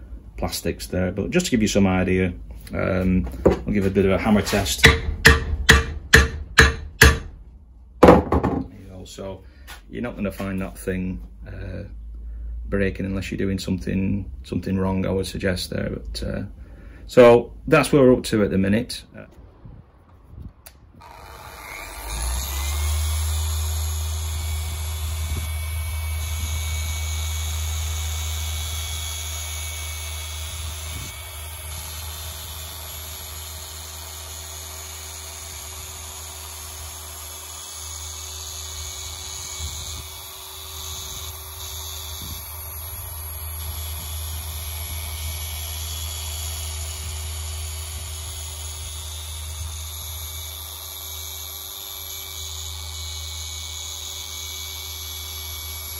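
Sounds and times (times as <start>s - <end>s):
orbital polisher whining: 21.0s - 55.9s.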